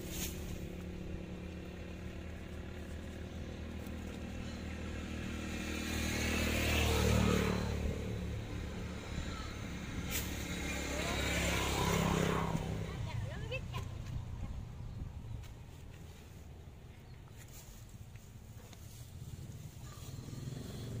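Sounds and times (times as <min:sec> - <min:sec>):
motorcycle engine running: 0:00.0 - 0:15.5, 0:18.5 - 0:21.0.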